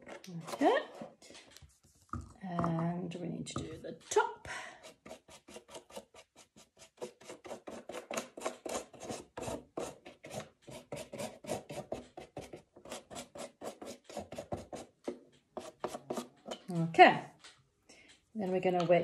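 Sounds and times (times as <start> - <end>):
paintbrush strokes on cardboard: 4.8 - 14.9.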